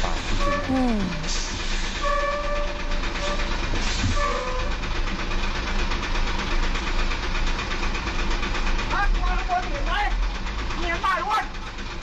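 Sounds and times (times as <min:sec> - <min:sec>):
diesel truck engine idling: 0:04.7 - 0:12.0.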